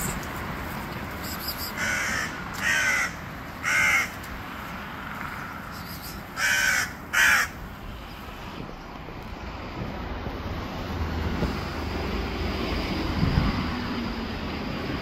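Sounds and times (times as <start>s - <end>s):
crow cawing: 1.8s - 4.2s, 6.4s - 7.6s.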